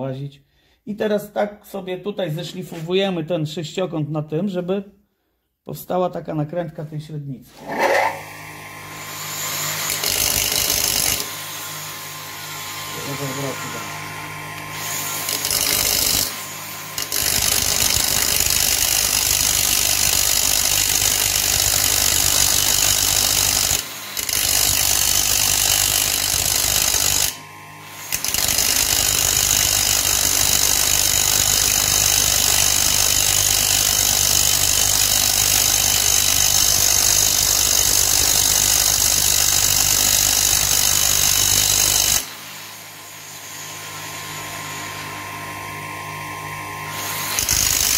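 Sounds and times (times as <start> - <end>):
bench grinder hum: 7.5 - 47.9
metal grinding on abrasive wheel: 7.6 - 8.3.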